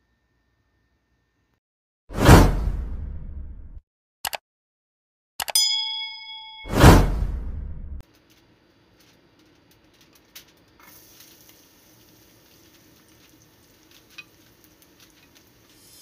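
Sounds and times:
small pops and crackles: 9.0 - 15.9
garlic sizzling in oil: 9.0 - 16.0.

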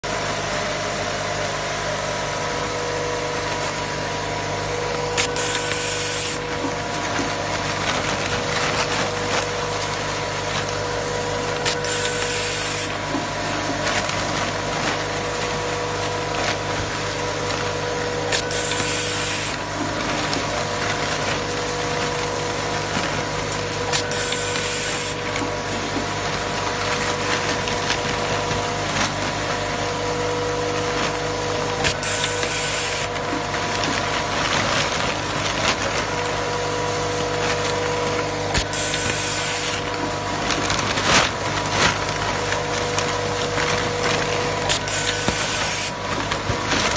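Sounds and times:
bowl feeder humming: 2.0 - 46.9
compressed air hiss: 5.2 - 6.4, 11.7 - 12.9, 18.3 - 19.6, 24.0 - 25.2, 31.8 - 33.1, 38.6 - 39.8, 44.7 - 46.0.

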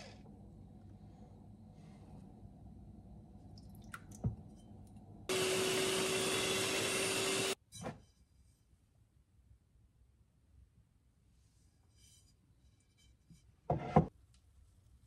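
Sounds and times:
electric hand mixer humming: 5.3 - 7.6.

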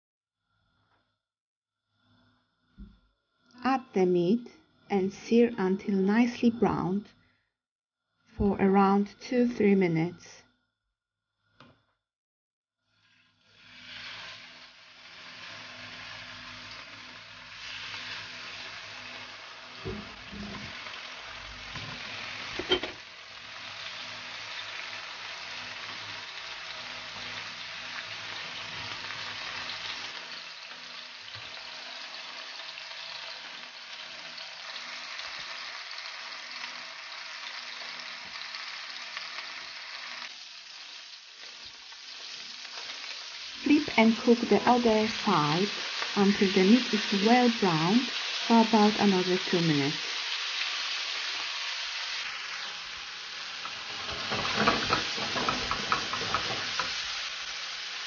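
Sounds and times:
meat sizzling in a frying pan: 12.8 - 58.0.

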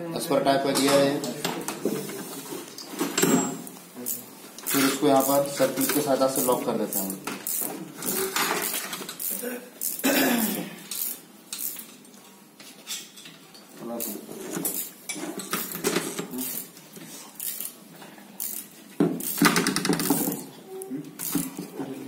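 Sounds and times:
metal parts clinking and scraping: 3.1 - 10.0, 10.9 - 12.0, 14.0 - 16.7, 17.4 - 17.8, 18.4 - 20.5, 21.2 - 21.6.

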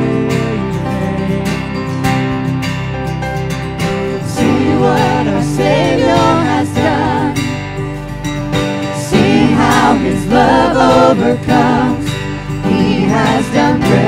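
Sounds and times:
group of singers: 0.0 - 1.8, 4.1 - 7.7, 8.9 - 14.0
strummed acoustic guitar: 0.0 - 14.0
worship band playing: 3.8 - 14.0.

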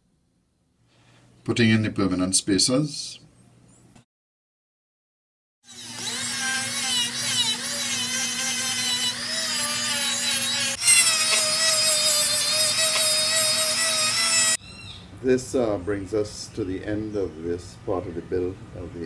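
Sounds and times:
rotary tool grinding wood: 5.7 - 14.6.

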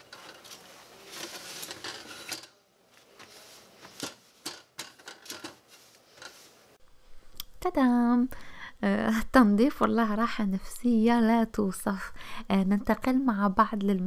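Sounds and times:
metal parts clicking and knocking: 1.2 - 2.5, 4.0 - 5.6.

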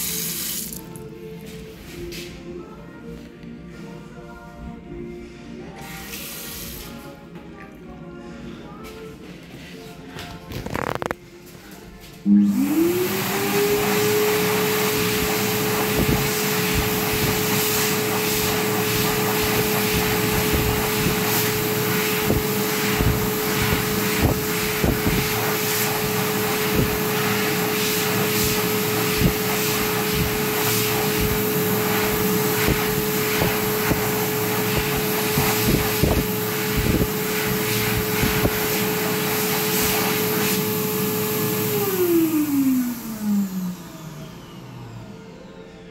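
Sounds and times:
hand dryer running: 0.0 - 1.0, 12.2 - 45.4.

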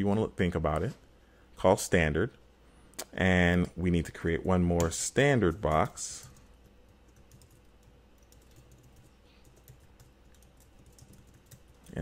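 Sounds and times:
typing on computer keyboard: 5.4 - 12.0.

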